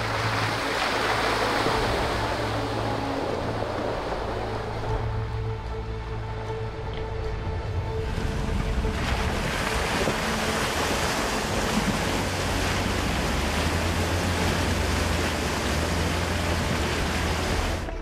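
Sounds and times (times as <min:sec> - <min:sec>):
water and mud spraying: 0:00.0 - 0:05.8, 0:07.6 - 0:18.0
low engine drone: 0:00.0 - 0:18.0.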